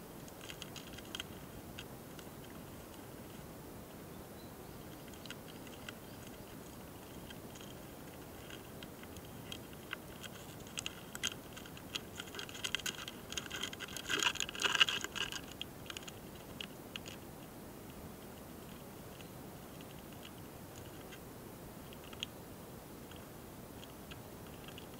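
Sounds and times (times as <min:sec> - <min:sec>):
beetles ticking and clicking: 0:00.2 - 0:24.9.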